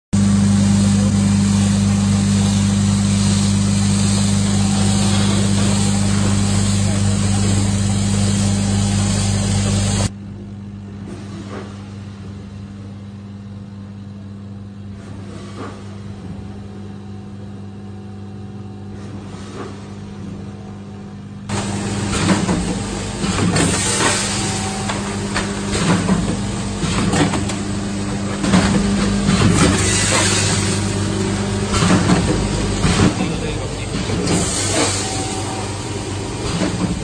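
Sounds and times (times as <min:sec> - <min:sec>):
packing machine running: 0:00.2 - 0:10.1, 0:10.9 - 0:37.0
low electrical hum: 0:20.1 - 0:37.0.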